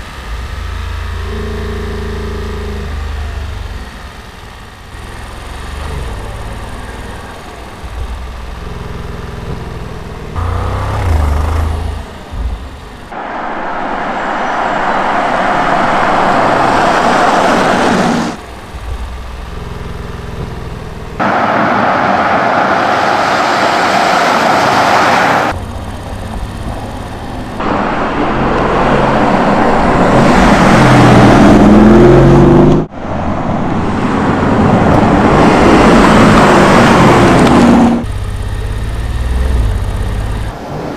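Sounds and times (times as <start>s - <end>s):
car engine running: 0.0s - 40.9s
tyre and road noise: 0.0s - 40.9s.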